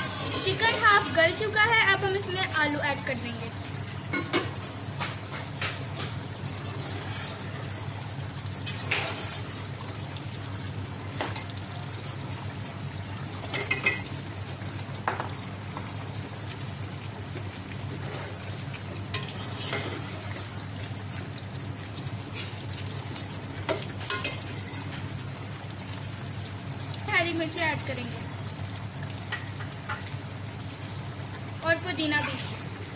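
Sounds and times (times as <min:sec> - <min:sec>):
curry sizzling faintly: 0:00.0 - 0:32.9
metal spoon clinking on pot: 0:13.5 - 0:14.1, 0:24.1 - 0:24.5.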